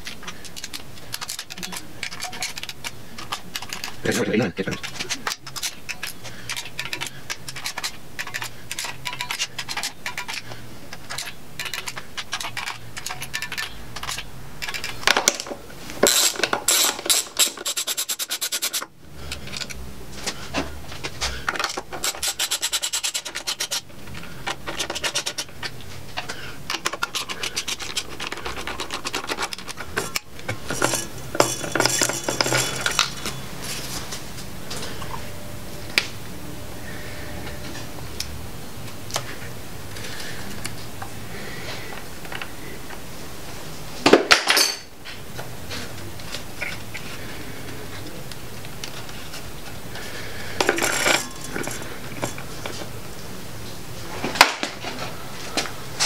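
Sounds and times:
metal tools clattering: 0.0 - 19.8, 21.3 - 35.3, 44.0 - 44.9, 50.0 - 52.9.

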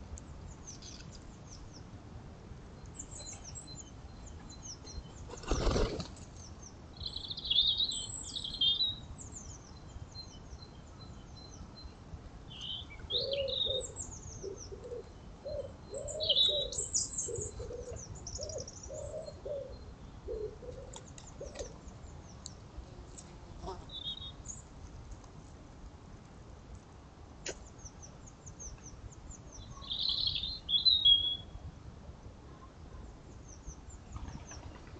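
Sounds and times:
small birds chirping: 2.8 - 24.8, 27.4 - 31.6
wood pigeon cooing: 13.1 - 21.8.

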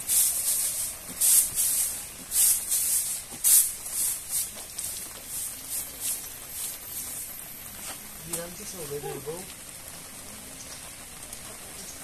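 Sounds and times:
sprayer hissing spurts: 0.0 - 7.2.

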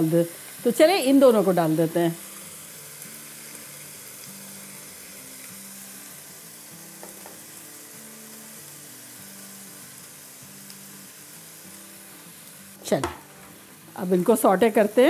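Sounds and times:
chicken frying in oil: 0.0 - 13.0, 13.6 - 15.0
spatula taps on pan: 7.0 - 7.4, 12.9 - 13.5.

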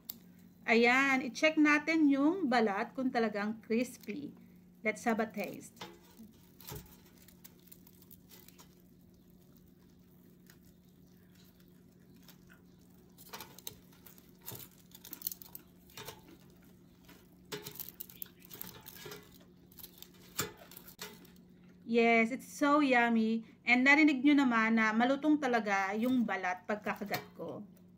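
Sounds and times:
faint low hum: 0.0 - 27.9
crispy skin crackling: 2.8 - 21.6.

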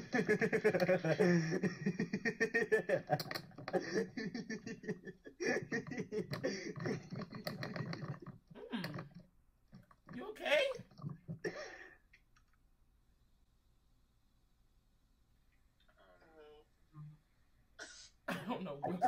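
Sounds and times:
young man laughing hard: 0.0 - 7.3.

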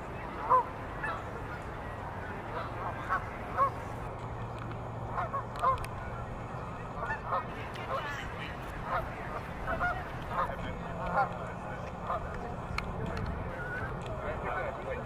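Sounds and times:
geese honking: 0.4 - 1.7, 2.5 - 3.8, 5.1 - 5.8, 6.9 - 11.3.

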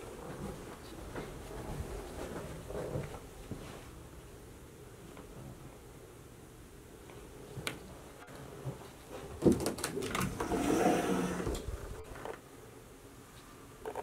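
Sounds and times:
door rattling and rubbing: 9.4 - 12.0.

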